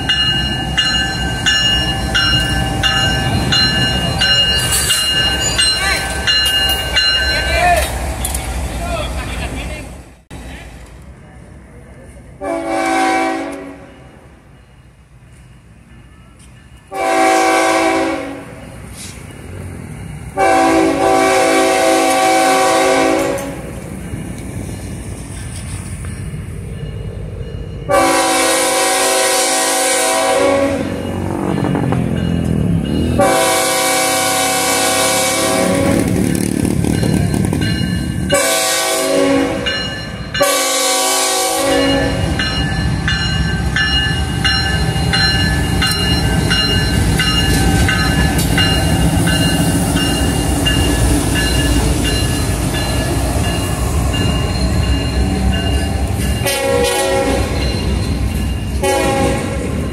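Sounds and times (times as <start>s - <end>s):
locomotive engines rumbling: 0.0s - 59.9s
locomotive air horn blasts: 12.4s - 13.9s, 16.9s - 18.6s, 20.4s - 23.7s, 27.9s - 31.0s, 33.2s - 36.1s, 38.3s - 39.7s, 40.4s - 42.3s, 56.4s - 57.6s, 58.8s - 59.7s
train wheels clacking on rails: 30.9s - 39.0s, 41.7s - 59.9s.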